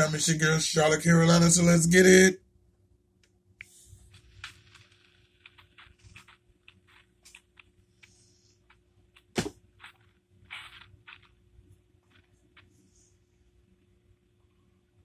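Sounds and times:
faint steady hum: 0.0 - 15.0
sharp knock: 9.4 - 9.6.

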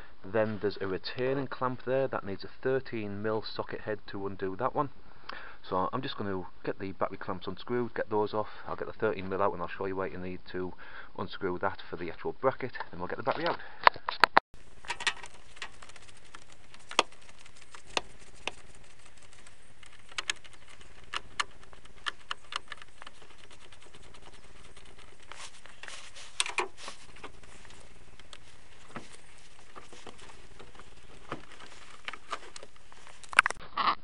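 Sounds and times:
faint steady hiss: 0.0 - 13.8, 14.6 - 33.6.

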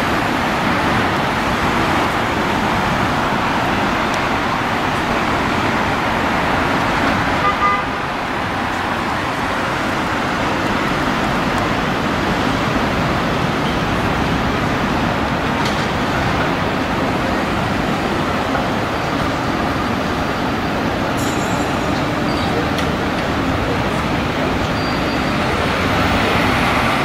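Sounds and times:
road traffic hum: 0.0 - 27.0
tram approaching on track: 0.0 - 27.0.

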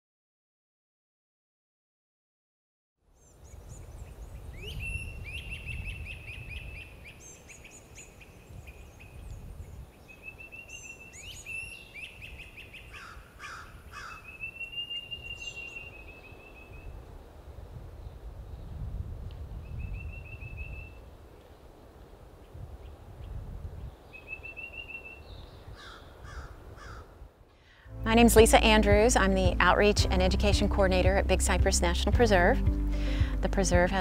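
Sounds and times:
birds chirping: 3.1 - 17.0, 22.4 - 27.1
short lower bird calls: 3.2 - 9.4, 10.0 - 17.0, 24.1 - 27.1
steady low rumble: 27.8 - 34.0.

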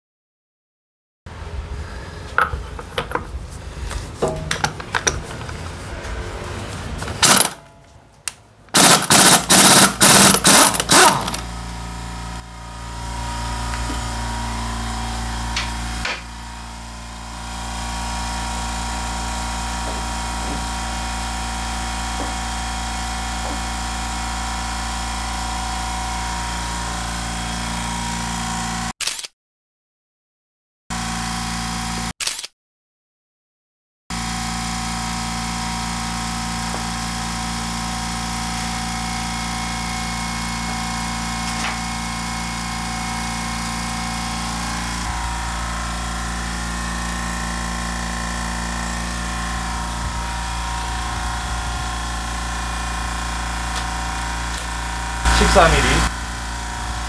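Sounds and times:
steady machine hum: 1.3 - 28.1, 35.8 - 57.0
impact wrench hammering: 4.2 - 5.7, 7.0 - 7.8, 8.7 - 11.5, 15.5 - 16.4.

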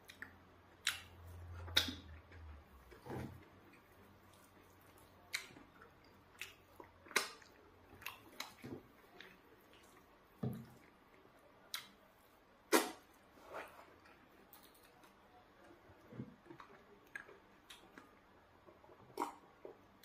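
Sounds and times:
wet chewing smacks: 0.0 - 11.0, 18.7 - 20.0.

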